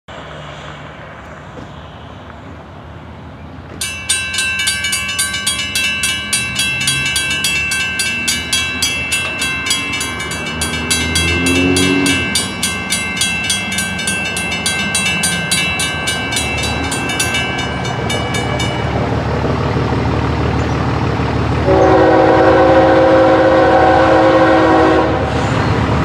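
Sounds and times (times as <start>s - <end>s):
railroad crossing bells ringing: 3.8s - 25.3s
low train horn: 10.9s - 12.4s, 21.6s - 25.6s.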